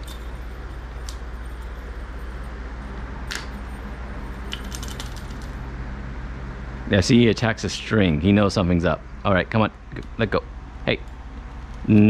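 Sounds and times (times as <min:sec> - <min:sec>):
small bell jingling: 0:00.0 - 0:02.6
steady low hum: 0:00.0 - 0:12.0.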